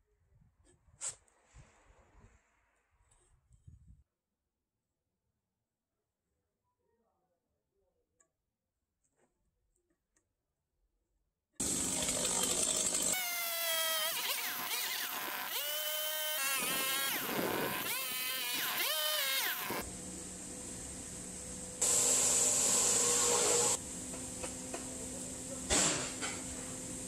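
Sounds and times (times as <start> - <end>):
chainsaw cutting log: 12.9 - 19.8
loud steady hiss: 14.5 - 27.0.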